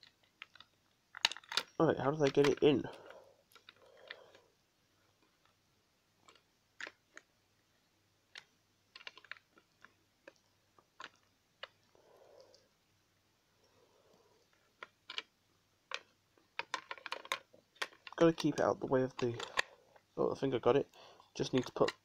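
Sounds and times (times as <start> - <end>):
plastic toy parts clicking: 0.0 - 4.4, 6.2 - 7.3, 8.3 - 11.9, 14.5 - 15.3, 15.9 - 19.7, 21.3 - 22.0.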